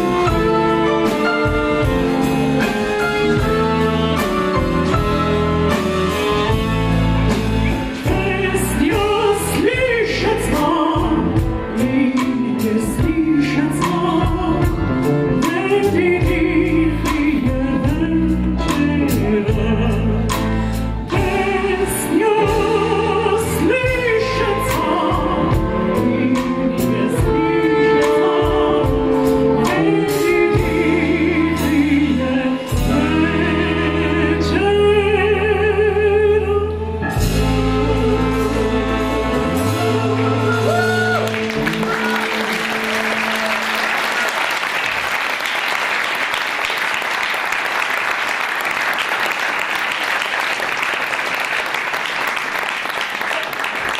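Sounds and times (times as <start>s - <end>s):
live band with bass and drums: 0.0s - 47.0s
woman singing with vibrato: 8.0s - 20.4s, 21.1s - 43.5s
audience applauding: 40.5s - 53.9s.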